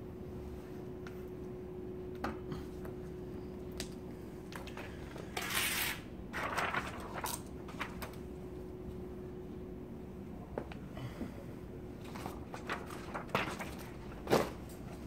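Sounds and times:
steady low hum: 0:00.0 - 0:15.0
vinyl film rustling: 0:03.8 - 0:08.3, 0:12.0 - 0:15.0.

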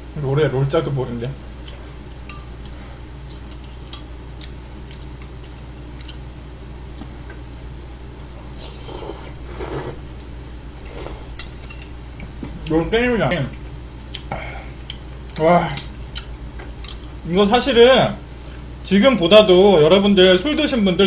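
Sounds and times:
steady low hum: 0:00.0 - 0:21.0
slurping and eating: 0:08.5 - 0:10.0.

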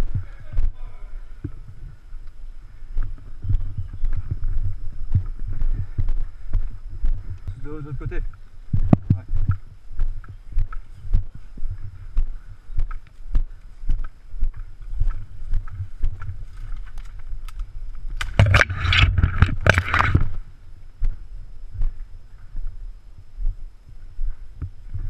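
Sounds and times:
footsteps as dull thumps: 0:01.4 - 0:16.8.

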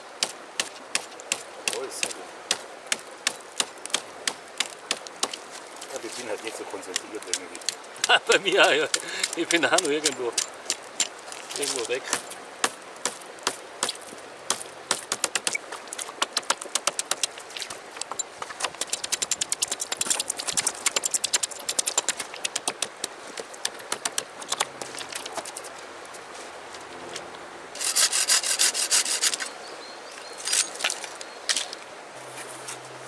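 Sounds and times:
hatchet chopping dry wood: 0:00.1 - 0:05.5, 0:06.9 - 0:25.5.

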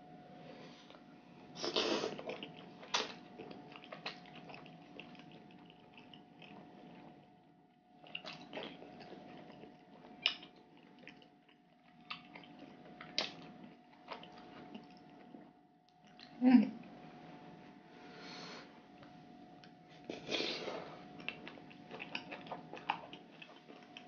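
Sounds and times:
faint steady hum: 0:00.0 - 0:24.0
wet chewing: 0:01.7 - 0:07.3, 0:08.0 - 0:16.3, 0:20.0 - 0:24.0
lip smacks: 0:13.1 - 0:13.4.

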